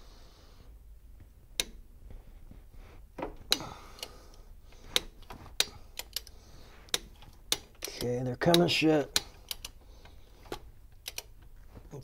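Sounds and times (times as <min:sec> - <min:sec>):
sharp metallic clicks: 0:05.0 - 0:11.5.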